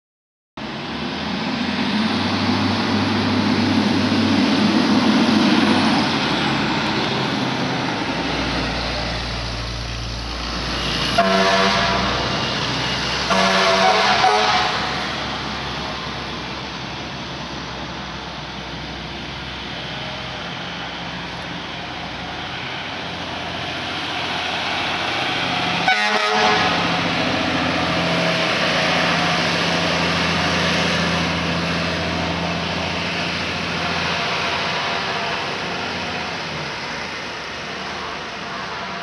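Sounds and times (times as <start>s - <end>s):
fire truck engine rumbling: 0.6s - 39.0s
air horn blasts: 11.2s - 12.2s, 13.3s - 15.0s, 25.8s - 26.8s.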